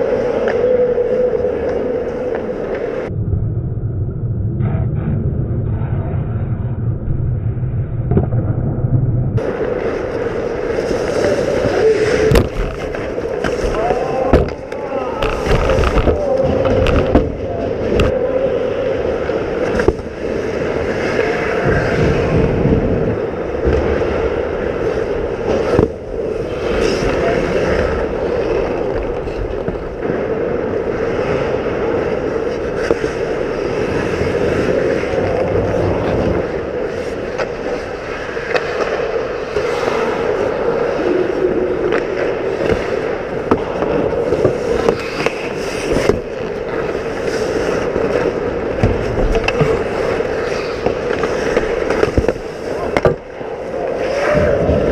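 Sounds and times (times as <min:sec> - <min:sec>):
hockey sticks and puck clacking: 0:09.4 - 0:18.2, 0:19.0 - 0:22.2, 0:24.9 - 0:54.9
skate blades scraping ice: 0:09.4 - 0:18.2, 0:18.9 - 0:54.9.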